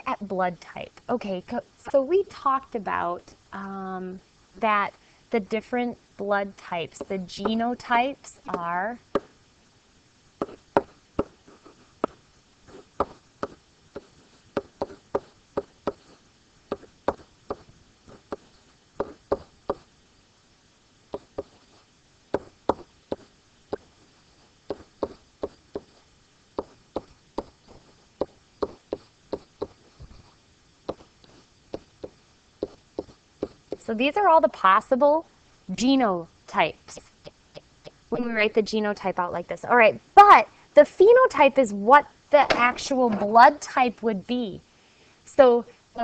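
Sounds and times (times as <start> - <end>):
marker tapping on whiteboard: 8.5 - 9.3, 10.4 - 19.9, 21.1 - 21.6, 22.3 - 23.9, 24.7 - 26.0, 26.6 - 30.2, 30.8 - 33.8.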